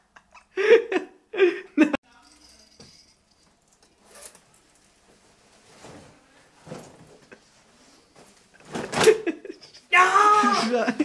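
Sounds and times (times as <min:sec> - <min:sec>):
jacket rustling: 0:04.0 - 0:09.9.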